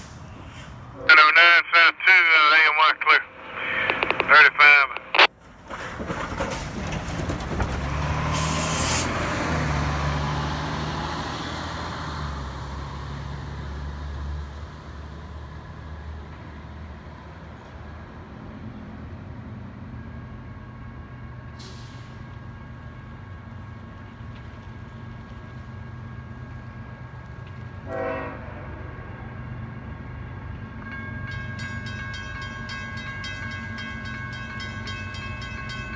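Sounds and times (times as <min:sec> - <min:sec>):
air brake hiss: 0:00.0 - 0:00.8, 0:08.3 - 0:09.1, 0:21.6 - 0:22.2
steady street hum: 0:00.0 - 0:35.9
bus driving past: 0:05.3 - 0:30.8.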